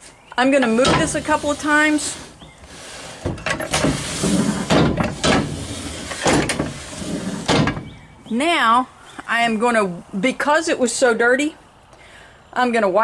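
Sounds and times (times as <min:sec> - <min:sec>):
metal scrapes and clunks: 0:00.6 - 0:08.1.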